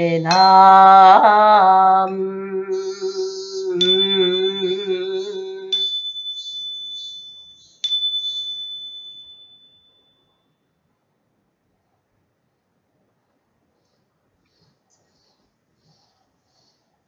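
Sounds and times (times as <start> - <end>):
chanted hymn: 0.0 - 5.8
small ritual bell ringing: 2.8 - 10.8.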